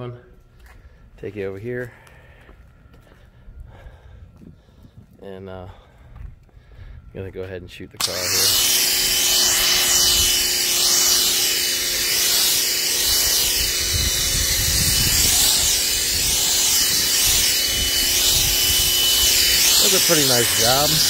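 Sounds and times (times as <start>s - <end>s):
pressure washer motor whine: 8.0s - 21.0s
foam spray hissing: 8.3s - 21.0s.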